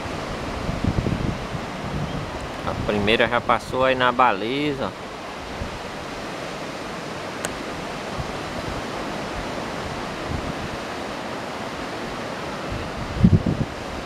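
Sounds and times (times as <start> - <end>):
sea surf: 0.0 - 14.0
wind: 0.0 - 14.0
wind buffeting on microphone: 0.0 - 14.0.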